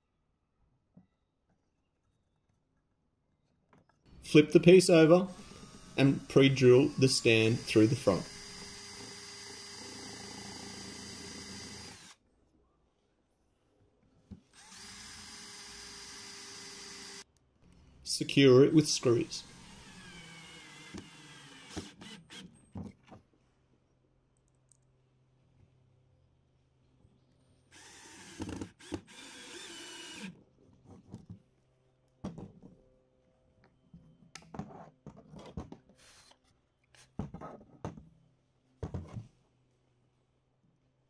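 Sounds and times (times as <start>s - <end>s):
cordless drill driving screws: 5.3s - 12.2s, 14.6s - 17.3s, 19.0s - 22.6s, 27.7s - 30.4s.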